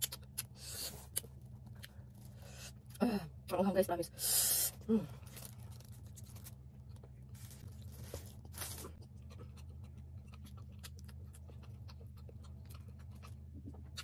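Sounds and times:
steady low hum: 0.0 - 14.0
chewing clicks and crackles: 8.4 - 14.0.

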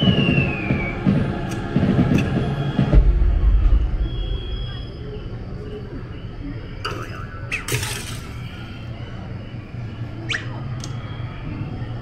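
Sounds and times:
low rumble of ride: 0.0 - 12.0.

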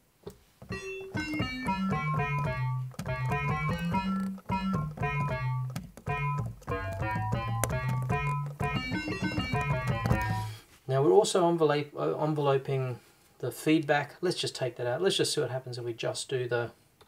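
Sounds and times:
low synthesizer notes: 0.8 - 10.5.

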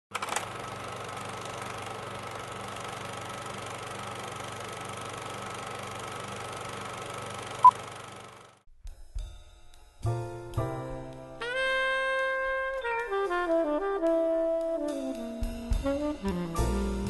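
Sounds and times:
film projector whirring: 0.1 - 8.6.

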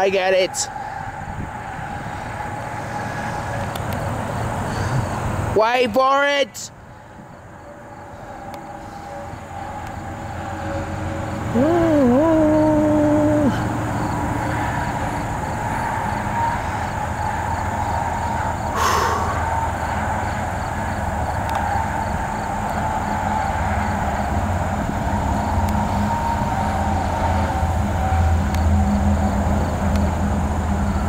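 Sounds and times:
diesel locomotive engine rumble: 0.0 - 5.6, 6.6 - 31.0
rush of noise: 18.7 - 20.0.

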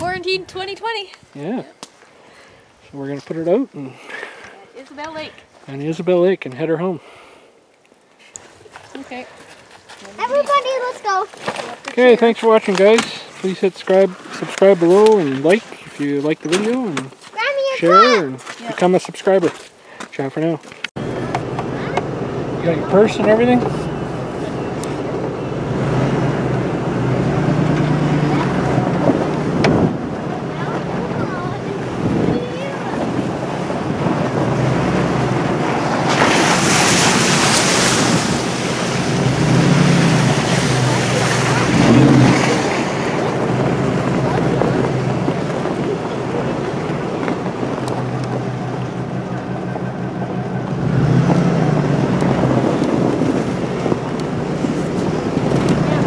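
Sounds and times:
tyre and road noise: 0.0 - 56.0
truck engine hum: 20.9 - 56.0.

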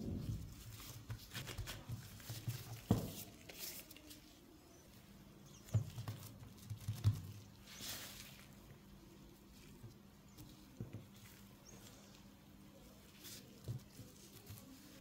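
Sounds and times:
dough thumping on a mat: 0.0 - 3.6
plastic gloves rustling: 0.0 - 15.0.

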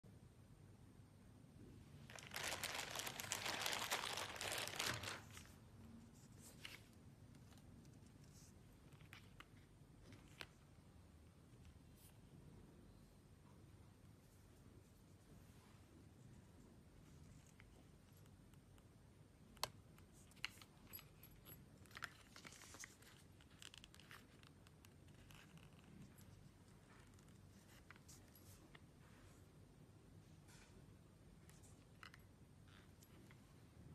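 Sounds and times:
plastic bag crinkling: 2.1 - 5.6
plastic wrap rustling: 2.1 - 5.6.

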